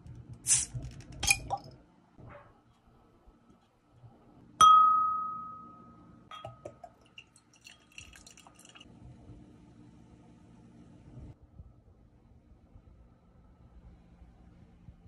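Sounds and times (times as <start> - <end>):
glass clinking: 4.6 - 8.8
beer pouring into a glass: 6.4 - 8.9
beer foam fizzing: 6.9 - 8.9.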